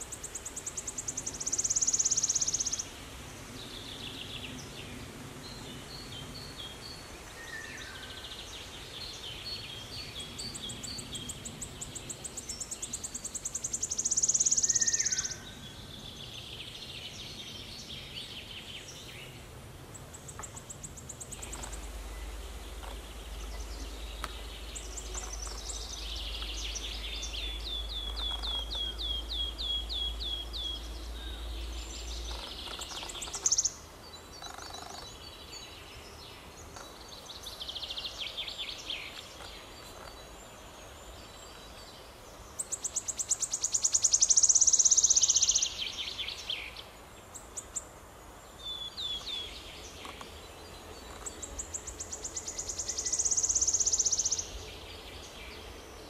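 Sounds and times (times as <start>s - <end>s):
warbler trilling: 20.4s - 33.8s.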